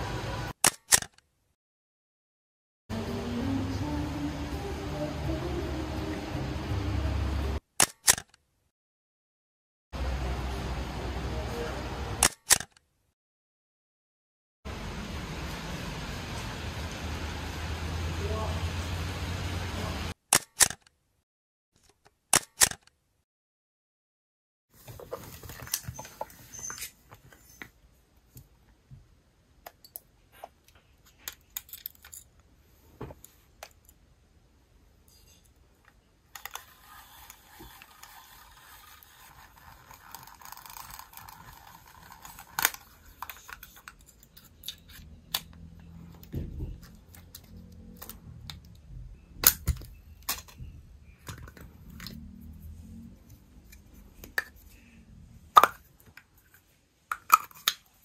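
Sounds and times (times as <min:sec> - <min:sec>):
camera mechanical clicks: 0:07.8 - 0:08.4.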